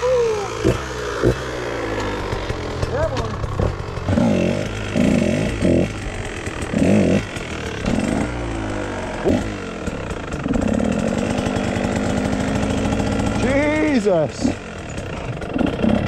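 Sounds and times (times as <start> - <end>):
dirt bike engine revving: 0.0 - 16.0.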